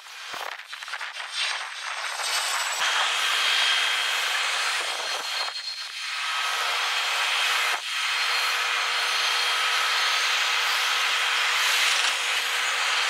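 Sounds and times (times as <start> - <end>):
sped-up jet engine hiss: 0.0 - 6.3.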